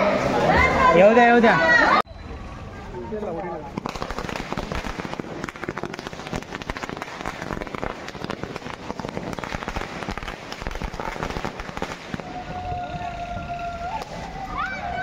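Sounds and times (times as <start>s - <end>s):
firecrackers crackling: 3.5s - 15.0s.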